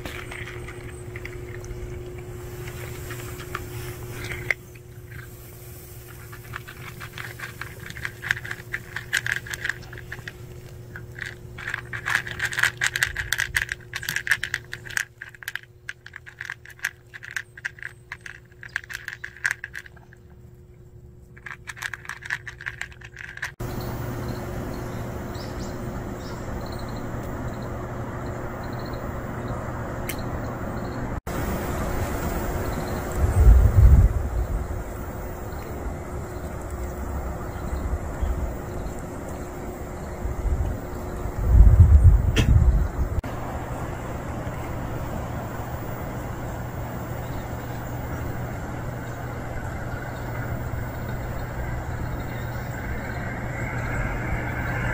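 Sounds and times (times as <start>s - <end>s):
cat crunching dry kibble: 0.0s - 20.3s, 21.3s - 23.6s
steady outdoor hiss: 0.0s - 54.9s.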